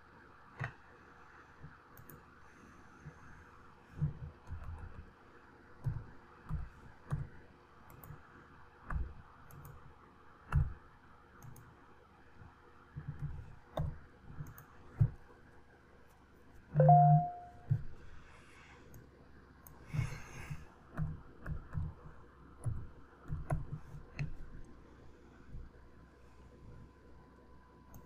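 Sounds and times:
mouse buttons clicking: 16.8s - 17.8s.

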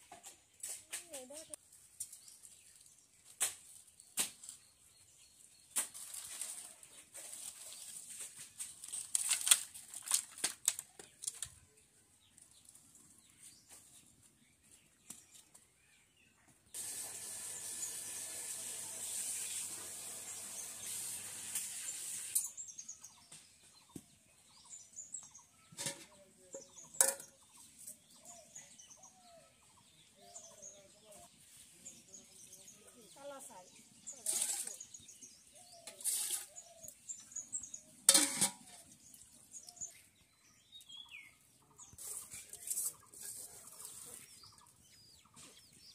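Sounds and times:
twigs crackling and snapping: 5.7s - 11.6s
birds chirping: 21.9s - 45.9s.

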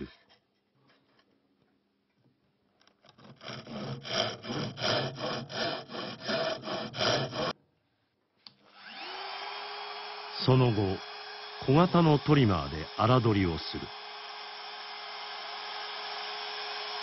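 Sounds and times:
hand saw cutting wood: 2.9s - 7.6s, 8.8s - 17.0s
electric router whine: 8.6s - 17.0s.

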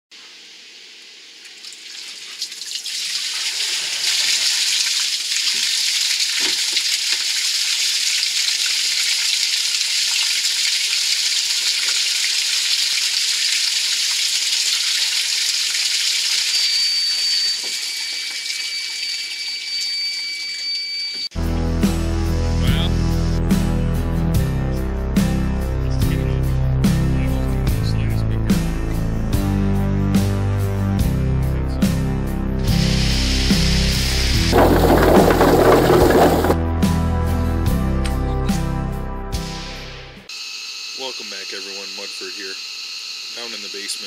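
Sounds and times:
water gushing from pipe: 1.5s - 19.4s, 32.7s - 36.6s
water splashing against wall: 34.4s - 36.6s.

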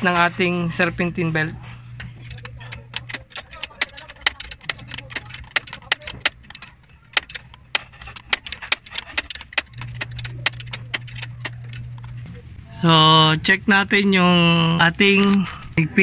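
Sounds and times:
steady low hum: 0.0s - 16.0s
metallic clicks of hand tool: 2.2s - 12.0s.

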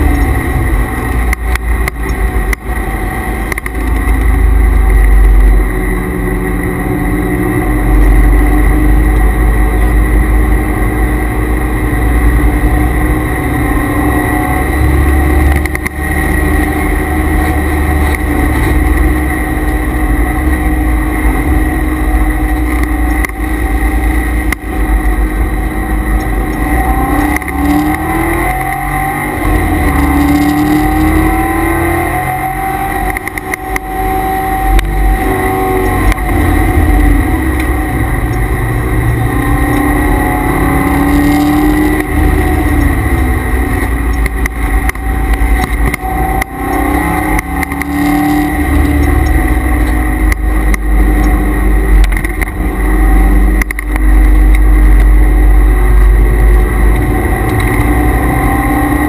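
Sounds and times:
car engine revving: 0.0s - 59.0s
high transmission whine: 0.0s - 59.0s.

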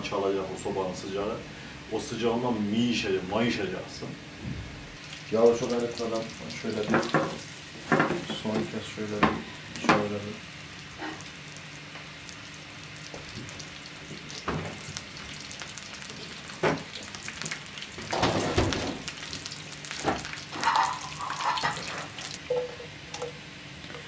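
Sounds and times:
butter sizzling in a frying pan: 5.0s - 22.5s.

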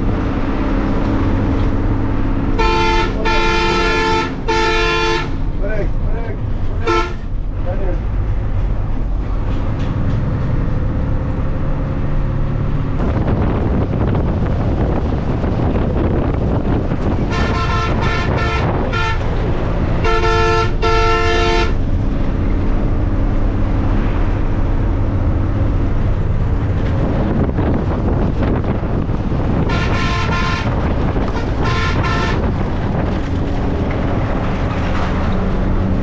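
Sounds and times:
bus engine and road noise: 0.0s - 36.0s
horn honking: 2.5s - 5.4s, 6.8s - 7.3s, 17.2s - 21.8s, 29.6s - 32.6s.

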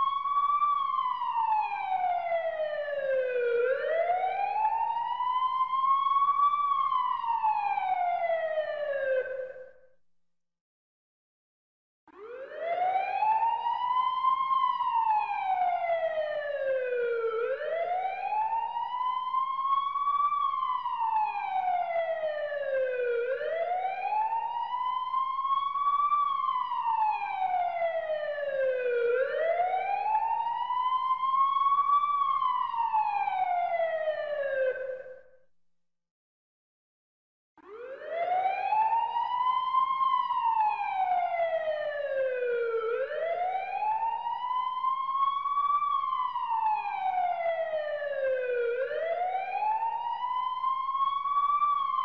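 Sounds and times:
emergency siren wailing: 0.0s - 9.8s, 12.1s - 35.3s, 37.6s - 52.0s.

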